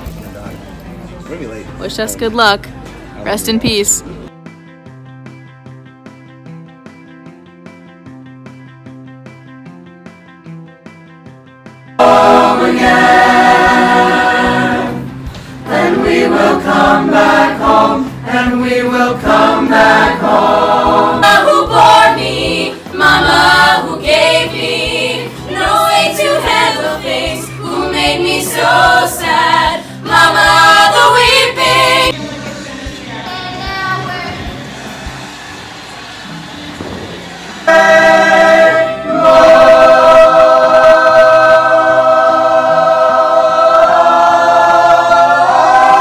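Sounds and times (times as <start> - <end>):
group of voices singing: 12.0 - 35.2, 37.4 - 46.0.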